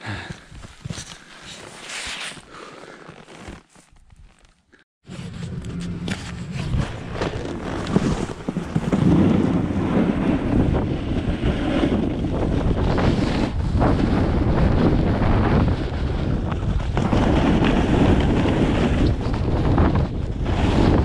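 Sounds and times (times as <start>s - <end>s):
wind rushing over microphone: 5.6s - 21.0s.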